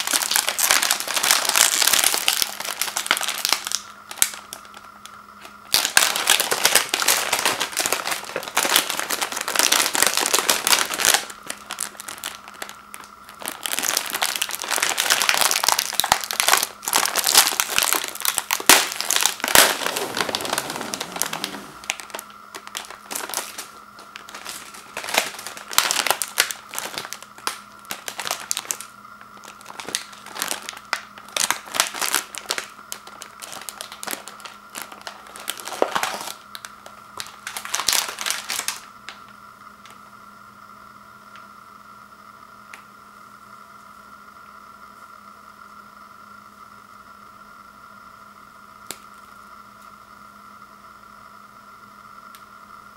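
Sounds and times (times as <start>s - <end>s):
plastic bag crinkling: 0.0s - 39.9s.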